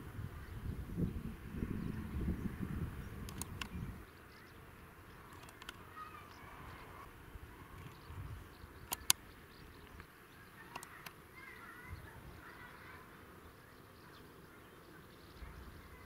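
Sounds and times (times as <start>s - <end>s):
insects buzzing: 0.0s - 16.0s
faint bird chirps: 0.3s - 16.0s
sharp clicks: 3.2s - 3.9s, 5.2s - 6.4s, 8.8s - 11.2s.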